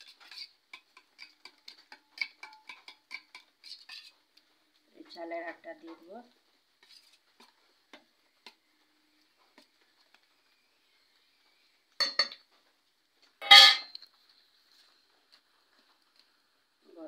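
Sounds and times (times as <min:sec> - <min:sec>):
spoon clinking on bowls: 0:00.0 - 0:04.1, 0:12.0 - 0:12.4, 0:13.4 - 0:14.0.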